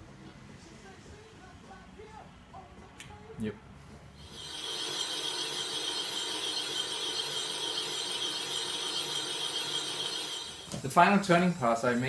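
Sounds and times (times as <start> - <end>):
lathe cutting metal with whine: 4.2 - 12.0.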